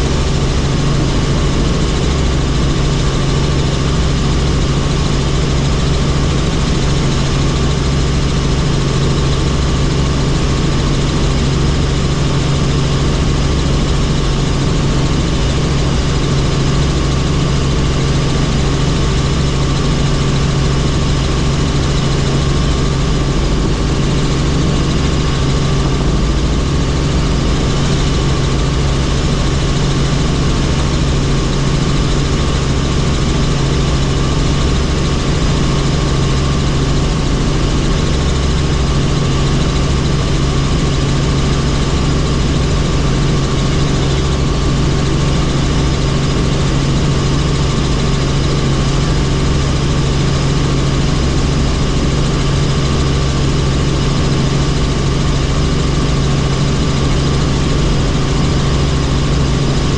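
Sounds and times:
helicopter engine and rotor: 0.0s - 59.9s.

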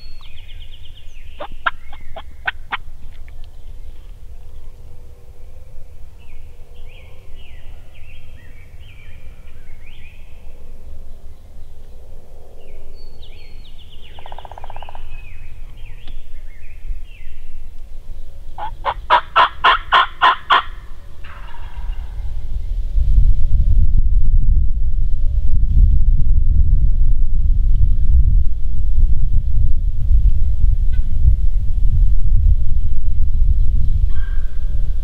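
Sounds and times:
short chirping calls: 0.0s - 3.8s, 18.6s - 19.2s
turkey gobbling: 1.4s - 2.8s, 18.6s - 20.8s.

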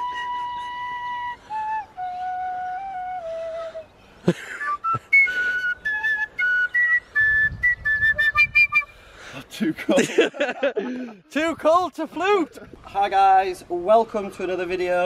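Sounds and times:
tin whistle tune: 0.0s - 9.0s.

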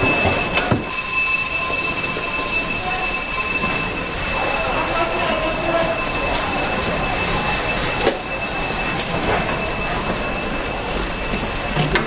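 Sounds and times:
high-pitched whine: 0.0s - 12.0s.

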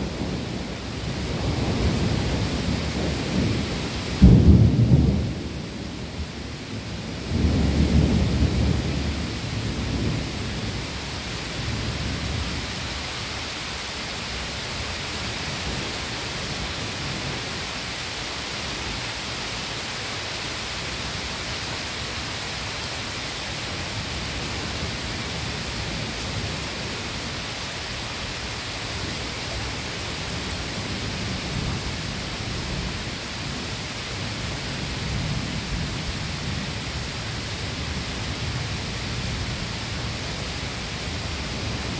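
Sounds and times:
distant thunder rumble: 0.0s - 11.0s
steady rain falling: 0.0s - 41.9s
thunder rolling: 1.2s - 5.7s.

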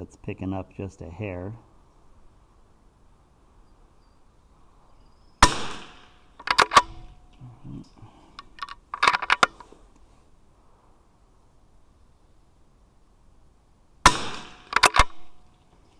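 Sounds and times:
rifle shot: 5.4s - 7.1s, 14.0s - 15.4s
rifle bolt metallic clicks: 5.4s - 9.6s, 14.1s - 15.3s.

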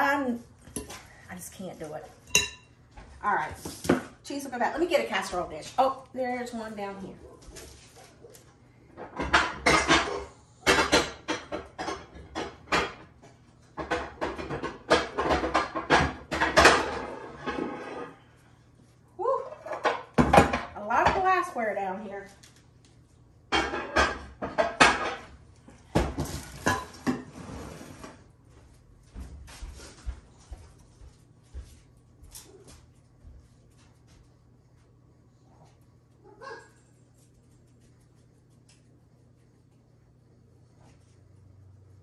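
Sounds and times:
casserole dishes clanking: 9.0s - 18.1s, 23.5s - 25.3s.

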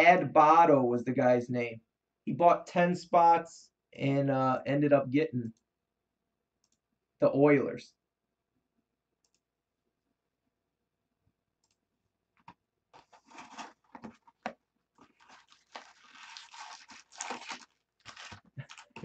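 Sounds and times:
plastic wrap crinkling and tearing: 13.0s - 14.2s, 15.0s - 19.0s
box lid flipping open: 13.0s - 18.4s.

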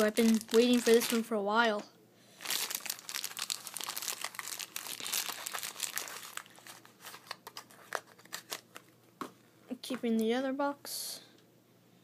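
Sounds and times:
plastic bag crinkling: 0.0s - 1.3s, 2.4s - 8.8s.

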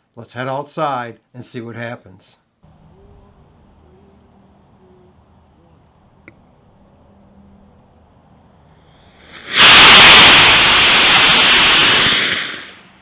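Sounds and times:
rocket motor rushing hiss: 9.0s - 13.0s.

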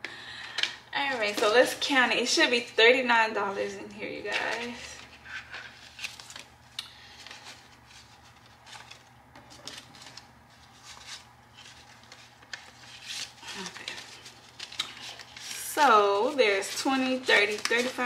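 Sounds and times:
paper banknotes rustling: 4.1s - 18.0s.

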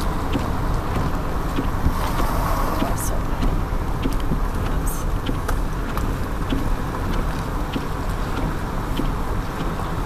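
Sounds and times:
car engine and tyres rumbling: 0.0s - 10.0s.

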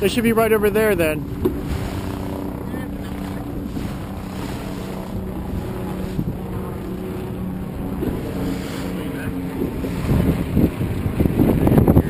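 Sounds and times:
motorboat engine humming: 0.0s - 12.0s
wind buffeting microphone: 0.0s - 12.0s.

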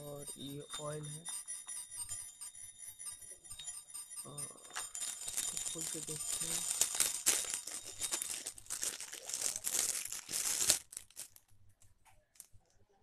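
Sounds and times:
plastic wrapping crinkling: 4.4s - 12.7s.

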